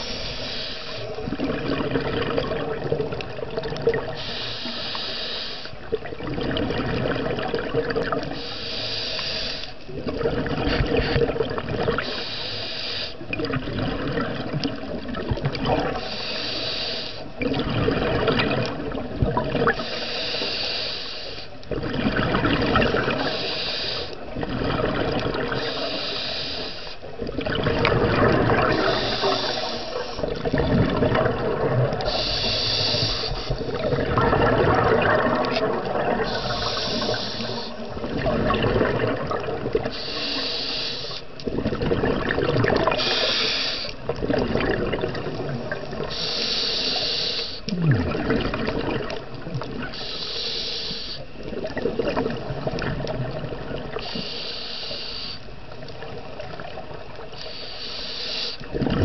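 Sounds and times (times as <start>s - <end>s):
regulator inhale hiss: 0.0s - 1.2s, 4.1s - 5.9s, 8.3s - 9.8s, 12.0s - 13.3s, 15.9s - 17.3s, 19.7s - 21.6s, 23.0s - 24.2s, 25.5s - 27.1s, 28.7s - 30.5s, 32.0s - 34.1s, 36.2s - 38.1s, 39.8s - 41.3s, 42.9s - 44.1s, 45.9s - 47.8s, 49.8s - 51.4s, 53.9s - 55.6s, 56.6s - 58.7s
exhaled bubbles gurgling: 0.0s - 59.0s.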